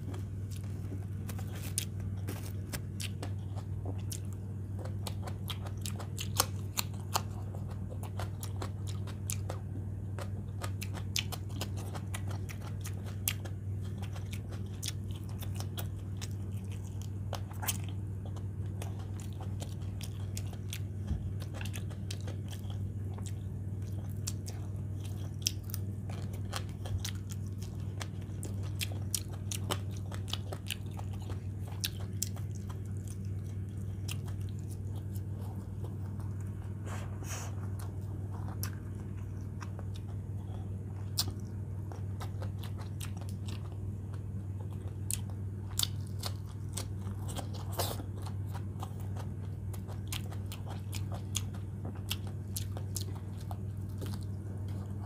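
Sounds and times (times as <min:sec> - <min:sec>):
food crunching: 0:00.0 - 0:55.0
person chewing food: 0:00.0 - 0:55.0
steady low hum: 0:00.0 - 0:55.0.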